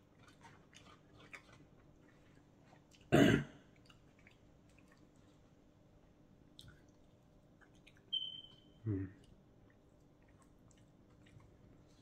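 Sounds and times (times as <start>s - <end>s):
person coughing: 3.1s - 3.6s.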